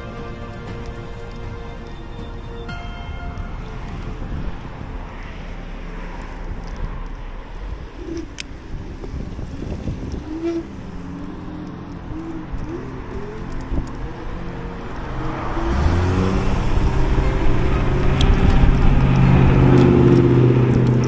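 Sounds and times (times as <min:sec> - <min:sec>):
wind and wheel noise: 0:00.0 - 0:21.0
electric scooter motor hum: 0:00.8 - 0:21.0
scooter rattling: 0:03.4 - 0:21.0.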